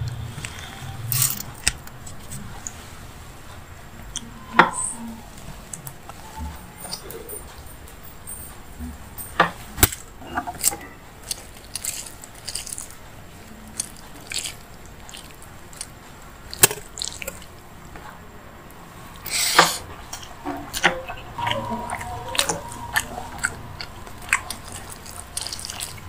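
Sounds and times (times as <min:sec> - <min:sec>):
fingers squishing rice and gravy: 0:09.8 - 0:18.2, 0:19.2 - 0:26.0.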